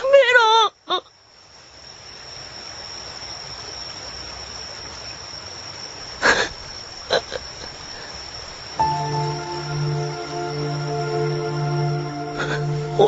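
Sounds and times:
music: 0:08.8 - 0:13.0.

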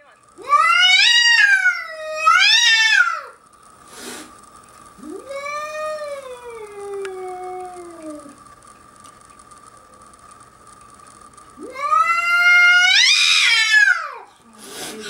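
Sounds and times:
cat yowling: 0:00.4 - 0:03.4, 0:11.6 - 0:14.2
cat hissing: 0:03.9 - 0:04.4, 0:14.6 - 0:15.0.

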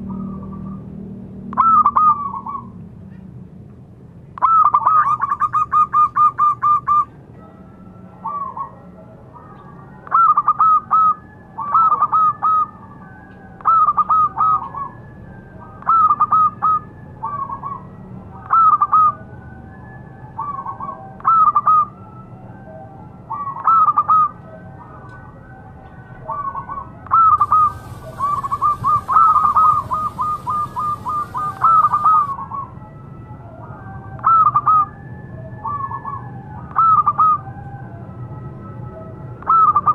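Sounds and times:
dove cooing: 0:08.2 - 0:15.0, 0:26.3 - 0:32.7.

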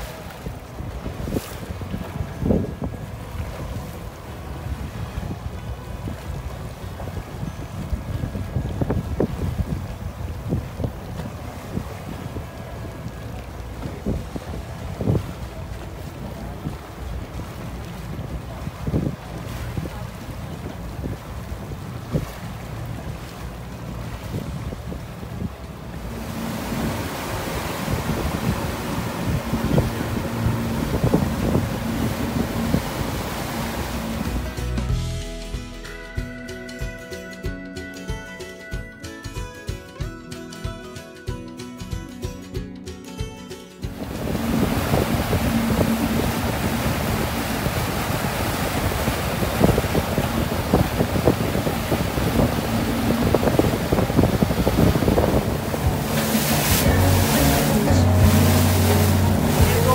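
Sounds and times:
wind buffeting microphone: 0:00.0 - 0:34.7, 0:43.9 - 0:59.9
low engine hum: 0:00.0 - 0:35.4, 0:43.9 - 0:59.9
water rushing against hull: 0:00.0 - 0:35.4, 0:43.8 - 0:59.9
water knocks: 0:43.9 - 0:59.9.

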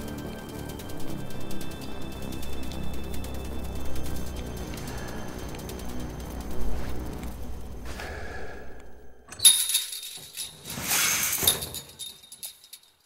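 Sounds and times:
low dark music: 0:00.0 - 0:10.4
harsh hissing hits: 0:10.7 - 0:11.8.

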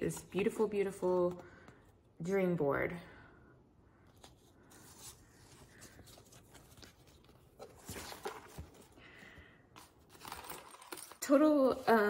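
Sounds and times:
paper rustling: 0:04.1 - 0:12.0.

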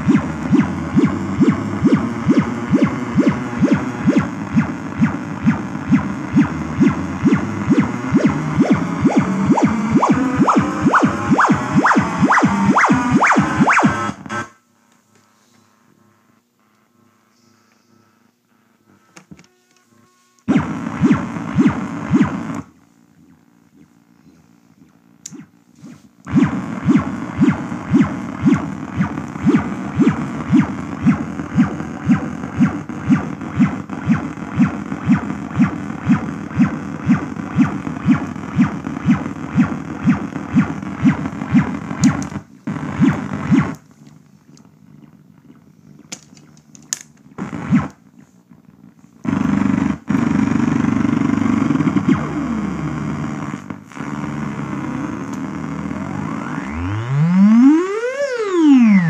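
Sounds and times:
buzzy synthesizer pulse: 0:00.0 - 0:46.6, 0:47.2 - 0:59.0
noisy synth drone: 0:00.0 - 0:59.0
sharp clicks: 0:24.8 - 0:25.5, 0:26.3 - 0:43.8.

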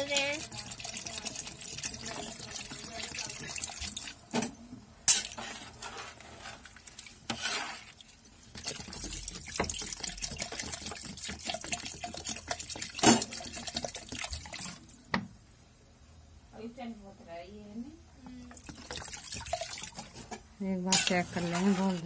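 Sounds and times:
water pouring into a pot: 0:00.0 - 0:04.3, 0:06.7 - 0:15.1, 0:18.5 - 0:22.0.

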